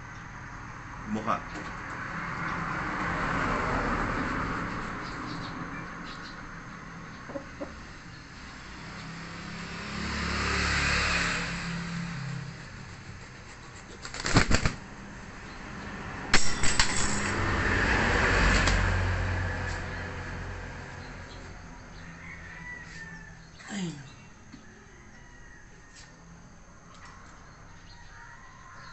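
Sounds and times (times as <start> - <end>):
rooster beating wings: 12.9 - 15.0.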